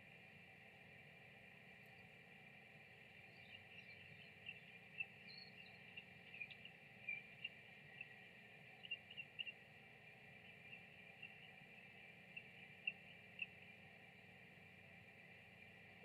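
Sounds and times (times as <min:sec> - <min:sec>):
high insect hum: 0:00.0 - 0:16.0
small birds chirping: 0:01.6 - 0:16.0.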